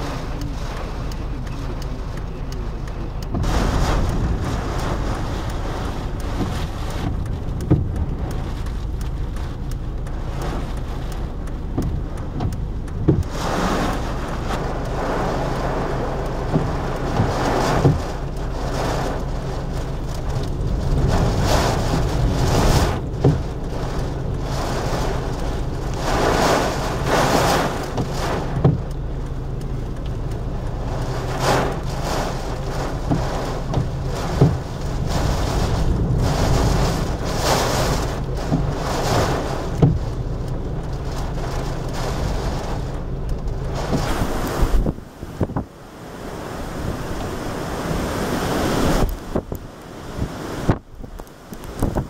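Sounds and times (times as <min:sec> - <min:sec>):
car engine and road drone: 0:00.0 - 0:52.0
rain and wind rushing: 0:00.0 - 0:52.0.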